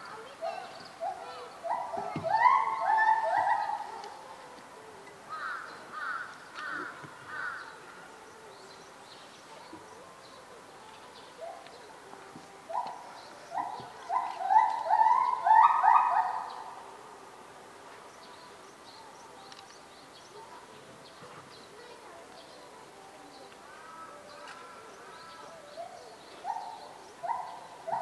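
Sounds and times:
bird calling: 12.7 - 16.8.

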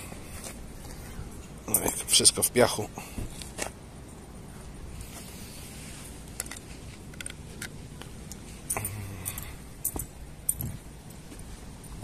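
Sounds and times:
metallic jingling and clicks: 8.7 - 11.2.

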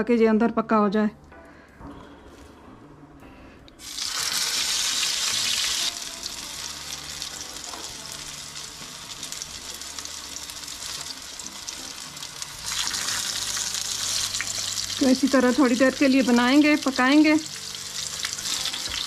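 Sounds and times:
patties sizzling in hot oil: 3.8 - 19.0.

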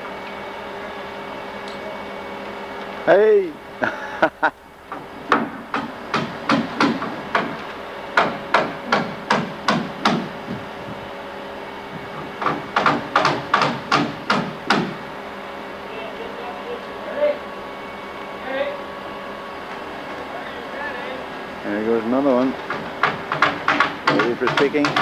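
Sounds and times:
hammer driving nails: 4.9 - 7.6, 8.2 - 10.3, 12.4 - 15.0, 22.7 - 25.0.

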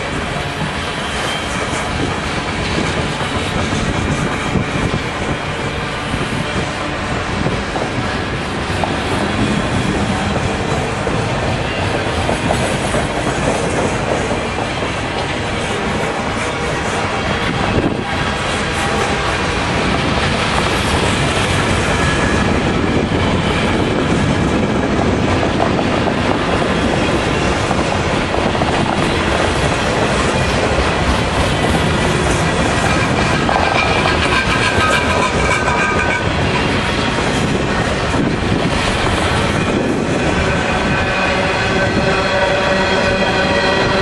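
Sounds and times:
steel wheels rumbling on rails: 0.0 - 44.0
high wheel squeal: 32.6 - 36.6.

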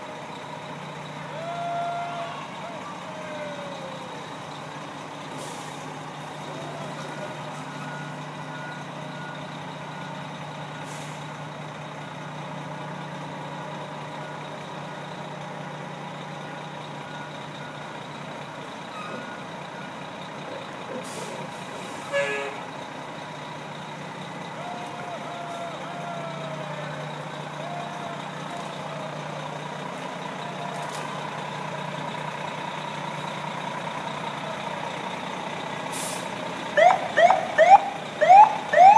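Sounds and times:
fire engine engine humming: 0.0 - 38.9
short hisses: 35.9 - 36.4.

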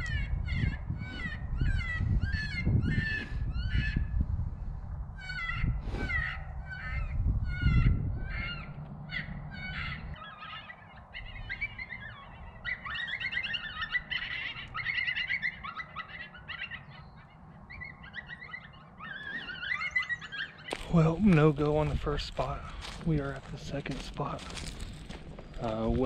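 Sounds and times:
electronic animal distress cries: 5.2 - 20.8.

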